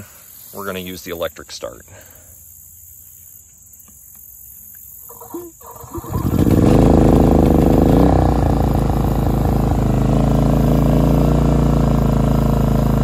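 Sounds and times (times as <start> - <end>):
electric starter cranking: 5.1 - 13.0
generator engine running loudly: 5.7 - 13.0.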